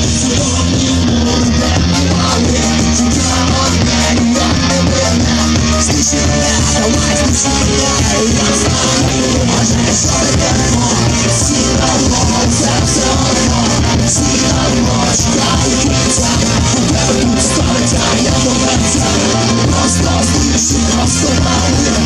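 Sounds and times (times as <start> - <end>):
bass guitar: 0.0 - 22.0
drums: 0.0 - 22.0
electric guitars: 0.0 - 22.0
man singing into a microphone: 0.0 - 22.0.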